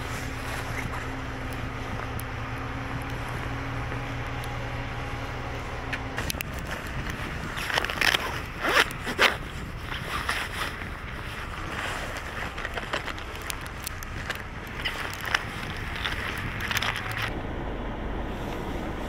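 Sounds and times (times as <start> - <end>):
sharp crackling crunching: 5.3 - 17.4
wind buffeting microphone: 6.0 - 17.3.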